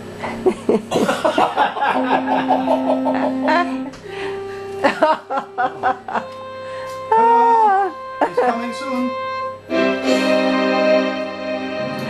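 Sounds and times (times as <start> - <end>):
people laughing: 0.4 - 3.9, 4.8 - 6.3, 8.2 - 8.8
long held notes: 1.6 - 12.0.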